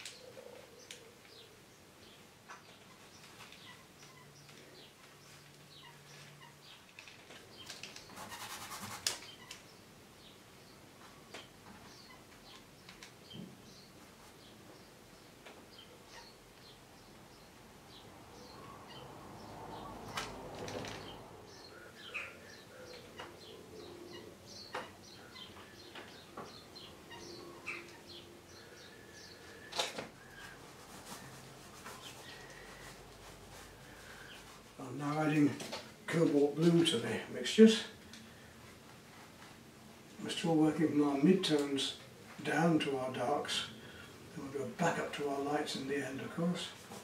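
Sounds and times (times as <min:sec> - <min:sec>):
small birds chirping: 0:00.0 - 0:47.0
brush scrubbing paint on canvas: 0:08.0 - 0:09.3, 0:30.3 - 0:34.8.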